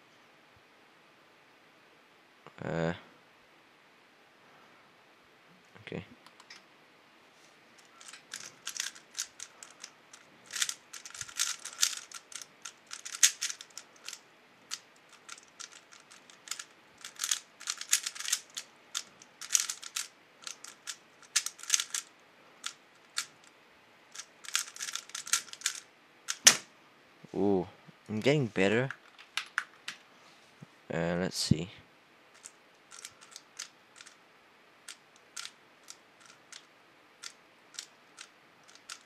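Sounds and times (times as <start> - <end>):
puzzle cube layers clicking: 7.8 - 23.5, 24.2 - 26.6, 32.4 - 34.2, 34.9 - 39.0.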